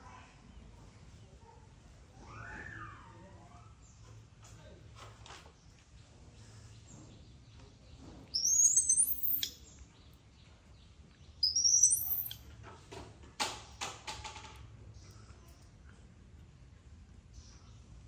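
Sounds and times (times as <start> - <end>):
squeaky animal calls: 8.4 - 9.5, 11.4 - 12.4.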